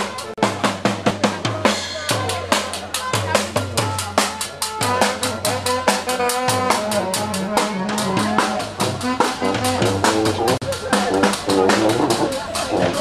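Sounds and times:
marching bass drum and cymbal: 0.0 - 13.0
brass horns holding notes: 4.6 - 13.0.

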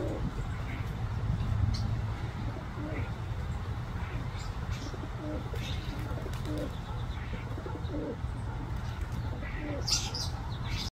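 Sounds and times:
dove cooing: 0.0 - 0.9, 2.4 - 3.2, 4.0 - 10.3.

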